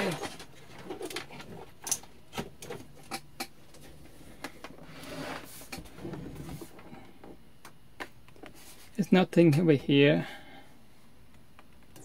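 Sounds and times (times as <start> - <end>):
rice cooker scraping bench: 4.8 - 6.7.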